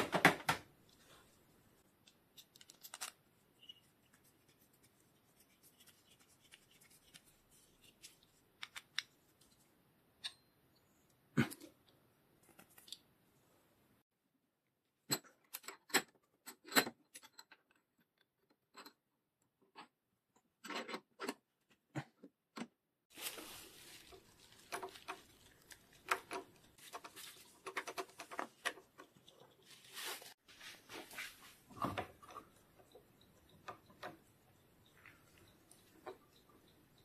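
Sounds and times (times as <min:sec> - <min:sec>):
rubbing and scraping: 0:03.4 - 0:08.6.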